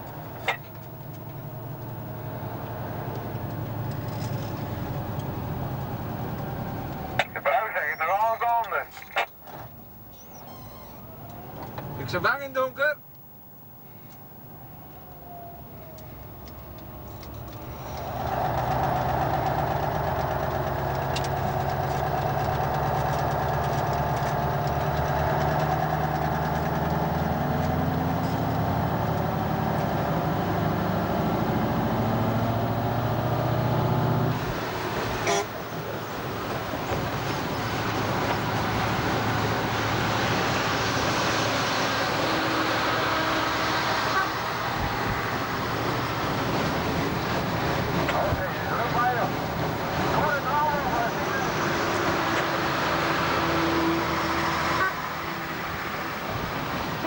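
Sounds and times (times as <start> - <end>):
diesel lorry engine pulling: 0.0 - 57.0
road and wind noise: 0.0 - 57.0.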